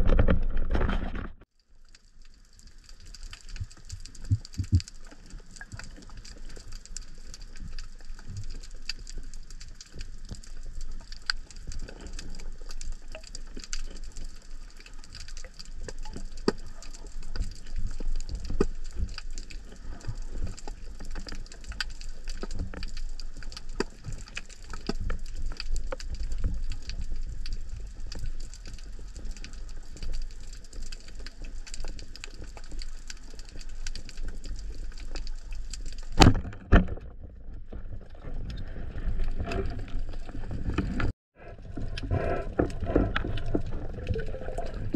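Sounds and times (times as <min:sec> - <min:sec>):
underwater crackling and popping: 0:00.0 - 0:44.9
low underwater rumble: 0:36.0 - 0:44.9.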